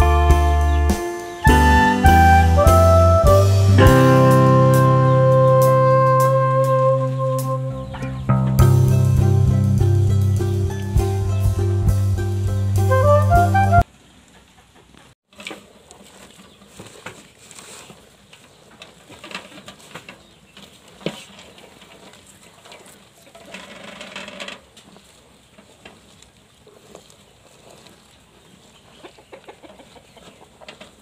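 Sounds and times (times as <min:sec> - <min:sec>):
cows munching crunchy stems: 0:15.3 - 0:31.0.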